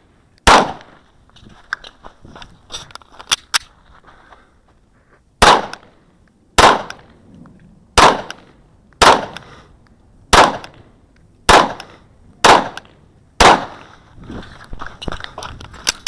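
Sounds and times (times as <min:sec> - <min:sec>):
pistol shots with echo: 0:00.4 - 0:01.0, 0:05.4 - 0:05.9, 0:06.6 - 0:07.1, 0:08.0 - 0:09.4, 0:10.3 - 0:10.8, 0:11.5 - 0:13.9.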